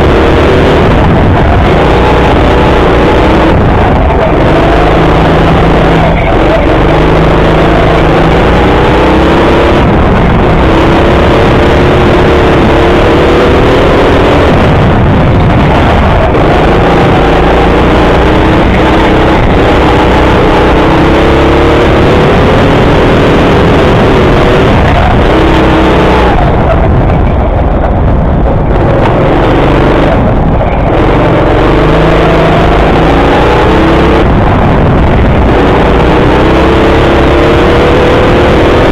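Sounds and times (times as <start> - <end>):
go-kart motor revving: 0.0 - 38.9
steady rush of noise: 0.0 - 38.9.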